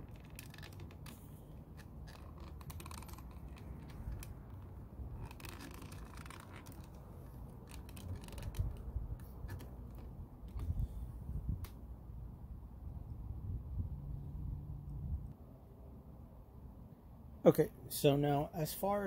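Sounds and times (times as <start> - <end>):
hard plastic scraping and clicking: 0.0 - 10.8.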